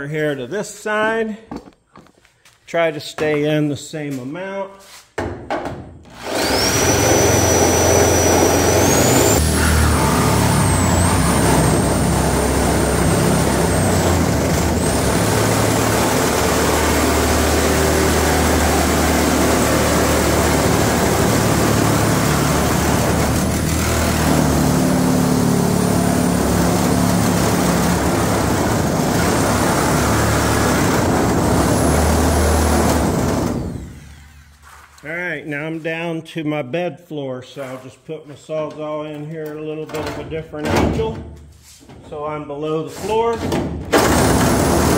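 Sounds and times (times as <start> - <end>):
reciprocating saw cutting metal: 6.1 - 34.5.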